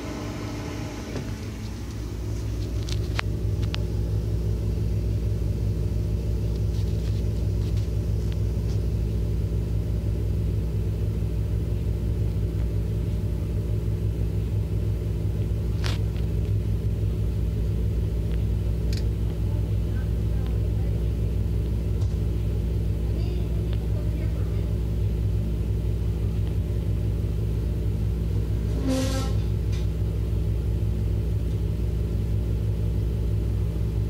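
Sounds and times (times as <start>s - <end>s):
low hum and rumble: 0.0s - 34.0s
steady low tones: 1.3s - 34.0s.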